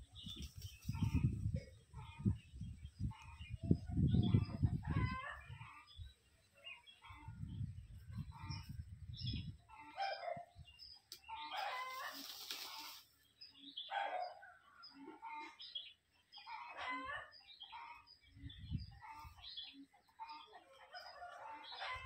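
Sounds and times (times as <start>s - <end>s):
chickens calling: 0.0s - 22.0s
wings flapping in sand: 0.2s - 1.2s, 11.6s - 13.1s.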